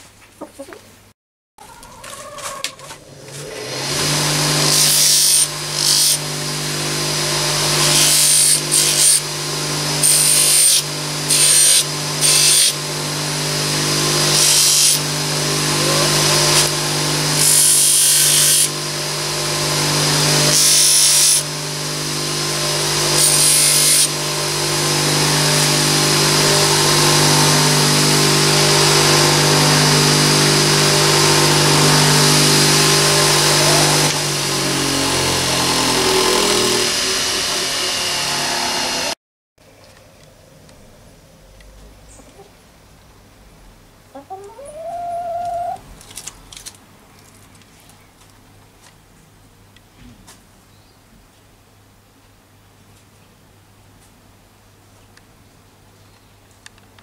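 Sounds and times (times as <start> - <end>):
bench polishing motor running: 3.0 - 39.2
metal part rubbing on buffing wheel: 10.0 - 12.8.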